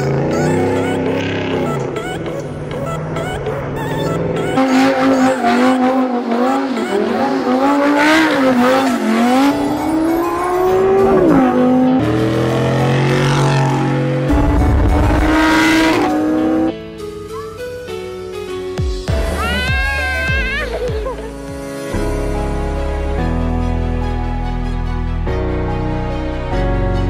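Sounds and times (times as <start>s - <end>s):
car engines revving: 0.0s - 16.7s
background music: 0.0s - 27.0s.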